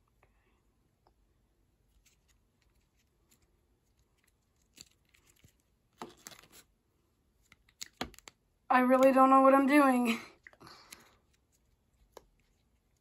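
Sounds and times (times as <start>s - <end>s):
puzzle cube plastic clacks: 7.4s - 8.4s.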